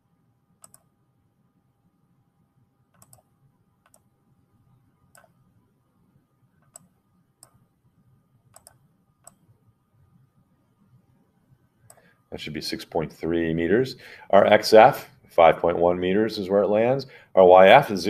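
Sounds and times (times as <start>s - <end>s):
computer mouse clicks: 0.6s - 0.9s, 2.9s - 4.1s, 5.1s - 5.4s, 6.6s - 7.6s, 8.5s - 9.5s, 11.8s - 12.2s.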